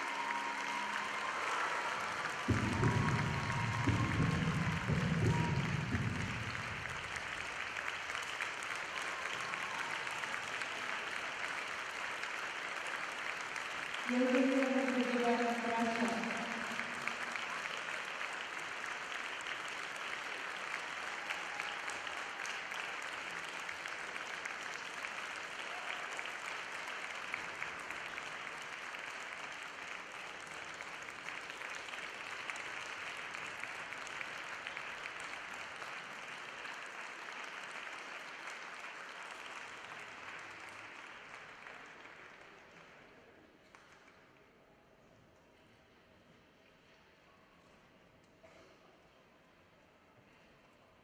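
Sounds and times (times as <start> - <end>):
audience applauding: 0.0 - 44.2.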